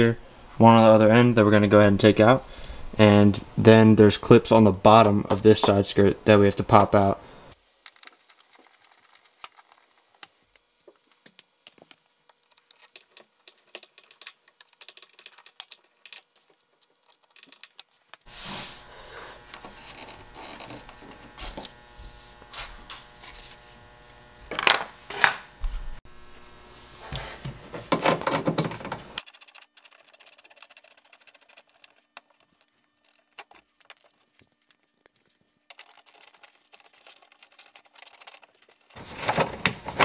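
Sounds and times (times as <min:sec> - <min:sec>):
steady hum: 0:18.3 - 0:37.6.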